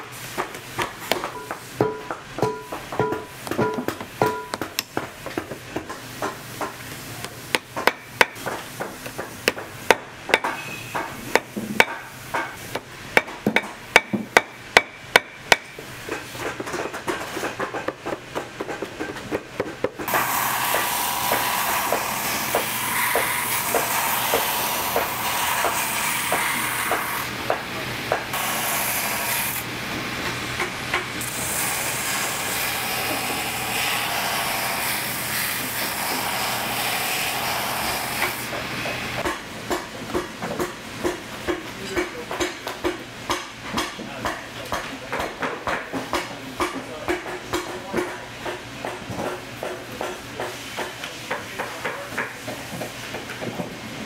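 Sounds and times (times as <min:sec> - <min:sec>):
hand tools tapping: 0:00.4 - 0:06.8
shop machine running: 0:20.0 - 0:39.6.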